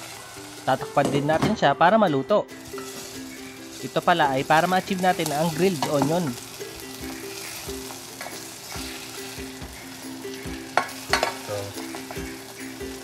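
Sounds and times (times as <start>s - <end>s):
onion rings sizzling in oil: 0.0s - 13.0s
spatula knocking against pan: 10.8s - 11.4s.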